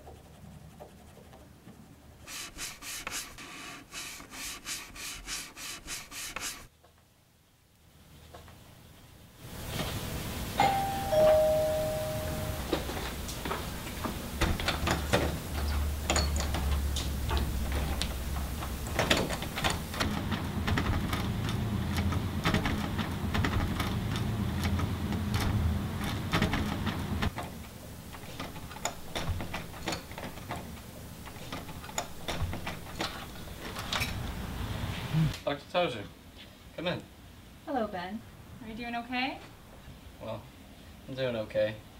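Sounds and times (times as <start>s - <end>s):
two-note doorbell chime: 10.6s - 12.9s.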